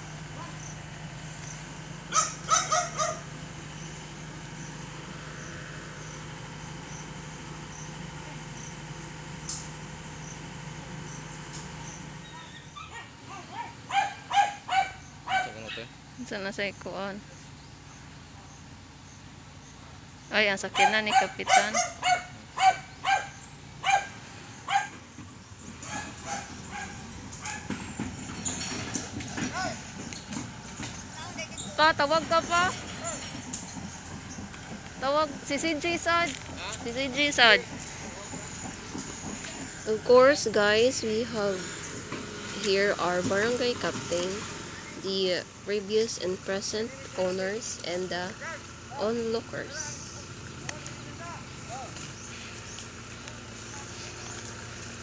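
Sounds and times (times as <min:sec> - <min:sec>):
backhoe engine droning: 0:00.0 - 0:55.0
dog barking: 0:00.4 - 0:00.7, 0:02.1 - 0:03.3, 0:12.3 - 0:15.9, 0:20.7 - 0:25.0, 0:25.8 - 0:27.8.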